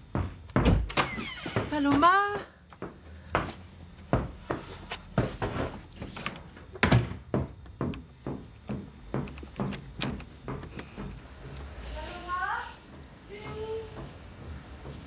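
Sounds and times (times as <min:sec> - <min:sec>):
knocks and thumps: 0:06.8 - 0:11.6.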